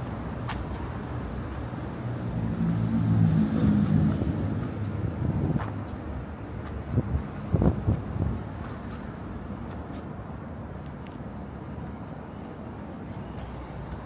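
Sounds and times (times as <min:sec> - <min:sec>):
vehicle passing by: 0:01.8 - 0:06.3.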